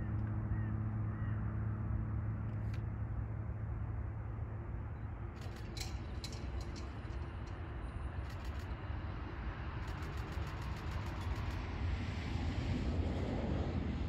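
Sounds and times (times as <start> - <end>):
quick sharp ticks: 8.2 - 8.8, 9.8 - 11.6.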